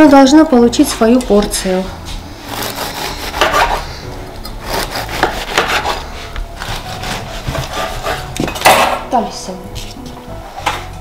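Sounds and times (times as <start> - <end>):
knife sawing on cutting board: 2.4 - 4.0, 4.6 - 8.4.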